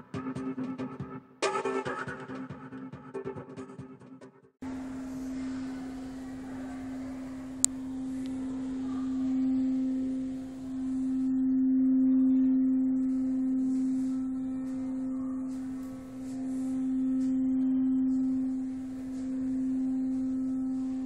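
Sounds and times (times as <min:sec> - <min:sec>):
sustained even tone: 0:04.6 - 0:21.0.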